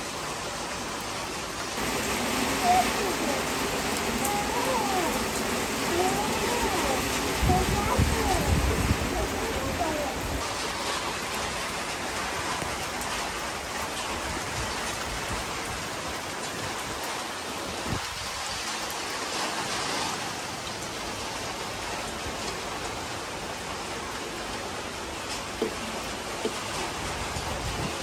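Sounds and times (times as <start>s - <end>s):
rain pattering on a terrace: 0.0s - 28.0s.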